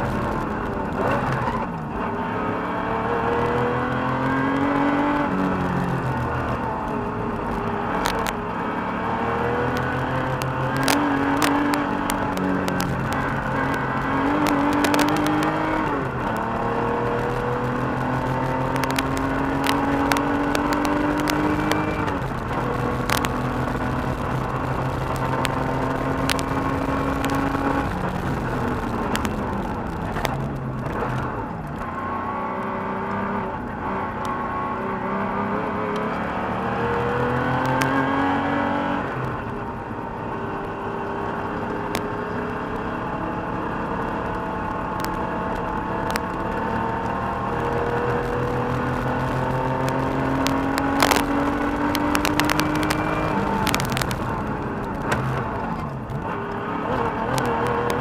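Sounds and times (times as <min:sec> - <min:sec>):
car engine revving: 0:00.0 - 0:58.0
sharp clicks: 0:06.5 - 0:08.5, 0:09.7 - 0:16.5, 0:17.2 - 0:31.9, 0:45.0 - 0:58.0.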